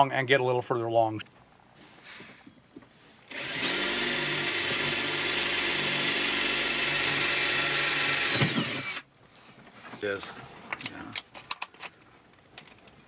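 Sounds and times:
power drill whining: 3.3s - 9.0s.

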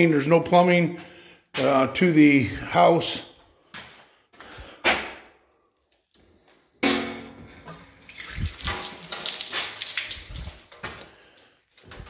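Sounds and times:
sheet metal duct knock ringing: 6.8s - 7.5s.

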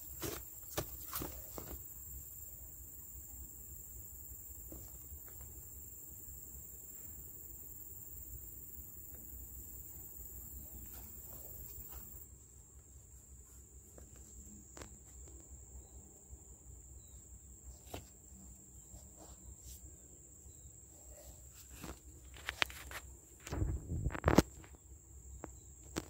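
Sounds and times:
high-pitched insect song: 0.0s - 12.3s, 14.2s - 19.1s, 24.0s - 26.0s.

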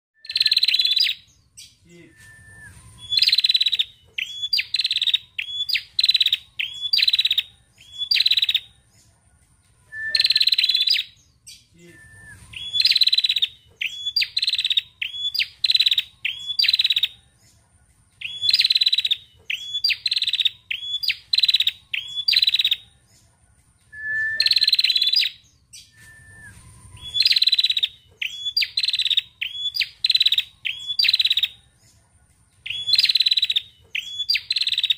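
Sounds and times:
bird trilling and chirping: 0.2s - 1.9s, 2.5s - 9.1s, 9.8s - 17.5s, 18.2s - 23.2s, 23.8s - 31.8s, 32.6s - 34.9s.

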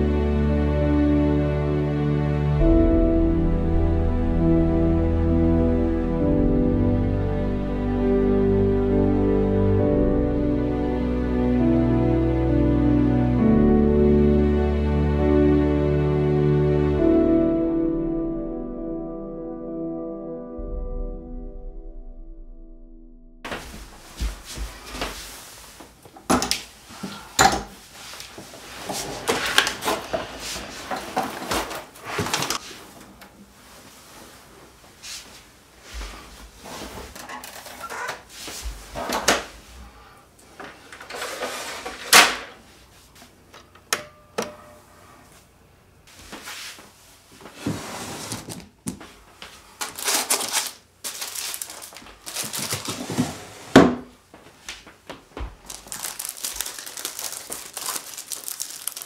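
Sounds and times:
cart castors rolling on wooden floor: 28.4s - 32.6s, 40.9s - 42.2s, 51.2s - 54.0s
wooden drawer opening and closing: 41.0s - 42.6s, 52.8s - 54.1s.

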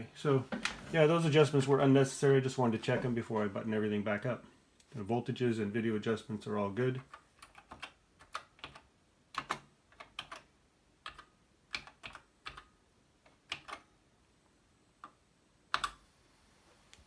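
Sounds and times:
keyboard keystrokes clicking: 7.0s - 12.7s, 13.3s - 13.9s, 15.0s - 16.0s.

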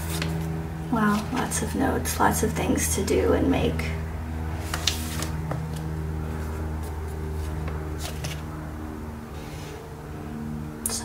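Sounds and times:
paper page turning: 0.0s - 0.5s, 1.1s - 1.6s, 4.6s - 8.5s
steady low hum: 0.0s - 11.0s.

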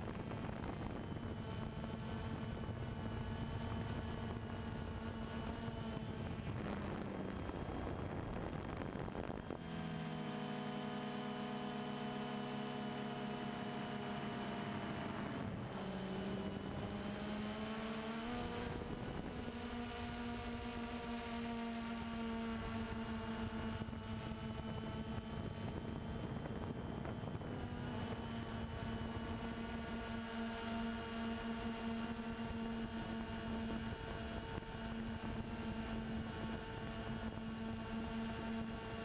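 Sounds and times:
drone motors whining: 0.0s - 39.0s.

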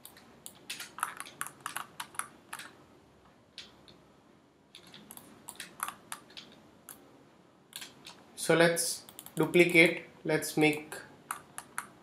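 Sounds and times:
computer keyboard clicks: 0.0s - 2.8s, 4.8s - 7.0s, 9.1s - 9.5s
mouse clicks: 4.8s - 7.0s, 9.0s - 9.5s.

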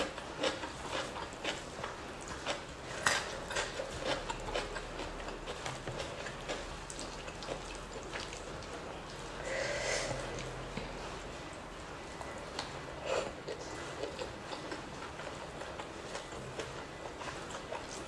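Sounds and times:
chewing smacks and clicks: 0.0s - 9.4s, 12.2s - 18.0s
fingers squishing rice and sauce: 0.0s - 9.4s.

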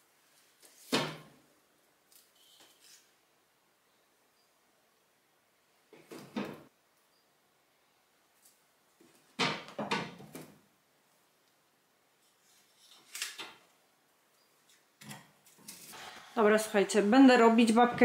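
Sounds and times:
household knocks and clatters: 9.3s - 10.6s.

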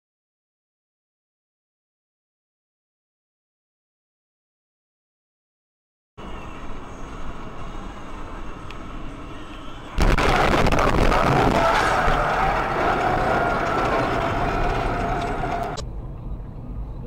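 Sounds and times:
car crash impact: 10.0s - 15.8s
loud crashing noise: 10.0s - 15.8s.

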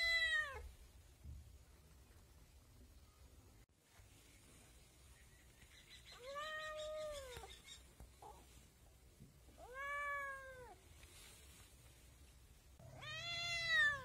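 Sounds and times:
kitten meowing: 13.0s - 14.0s.

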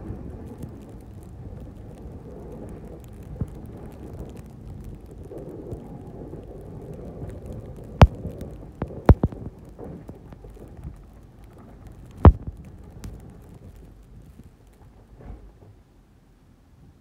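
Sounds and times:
sharp knocks: 9.1s - 9.4s.

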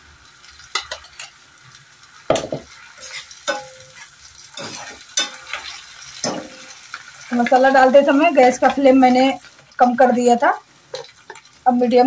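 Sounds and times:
paste sizzling: 0.0s - 12.0s
spoon scraping iron pan: 2.4s - 6.8s.

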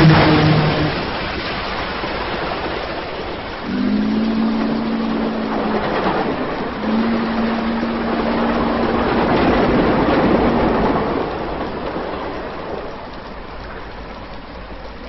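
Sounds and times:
low horn chord blasts: 0.0s - 1.2s, 3.6s - 11.4s
rain hissing: 0.0s - 15.0s.

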